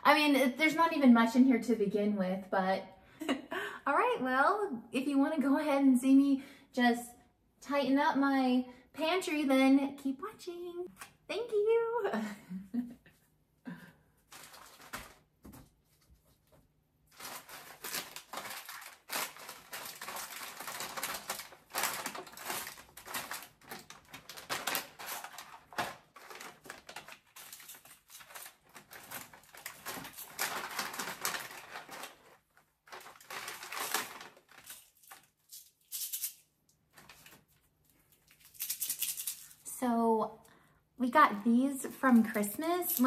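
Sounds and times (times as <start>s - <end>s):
plastic bags crinkling: 14.3s - 15.3s, 17.1s - 39.7s, 42.0s - 43.0s.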